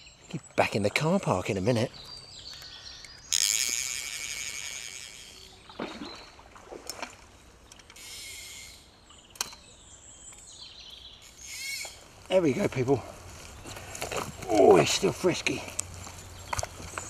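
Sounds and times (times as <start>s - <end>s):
water splashing: 3.9s - 7.6s.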